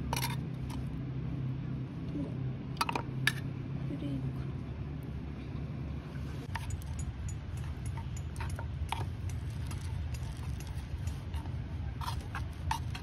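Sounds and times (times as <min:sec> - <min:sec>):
chopsticks scraping metal tin: 0:07.6 - 0:13.0.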